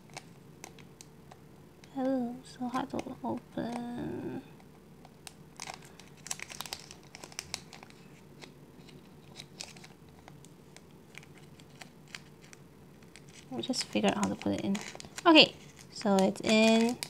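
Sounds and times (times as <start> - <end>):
plastic bag crinkling: 5.2 - 17.0.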